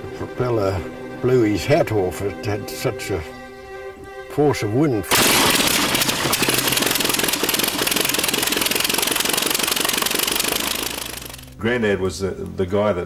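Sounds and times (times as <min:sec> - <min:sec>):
small engine running fast: 0:05.1 - 0:11.6.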